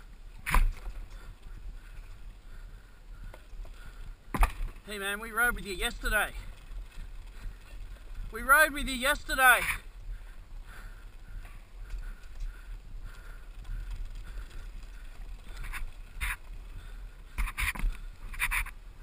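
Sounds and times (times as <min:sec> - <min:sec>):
bike tyres rumbling on wood: 0:00.0 - 0:05.0.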